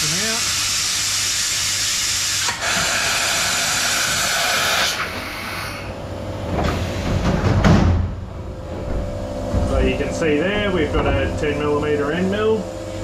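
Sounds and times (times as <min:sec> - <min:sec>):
compressed air hissing: 0:00.0 - 0:06.0
tool changer rumbling and knocking: 0:06.0 - 0:12.8.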